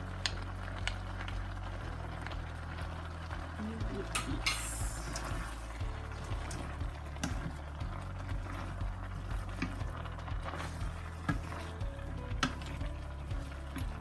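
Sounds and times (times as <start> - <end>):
wooden spoon knocking and scraping pan: 4.1 - 14.0.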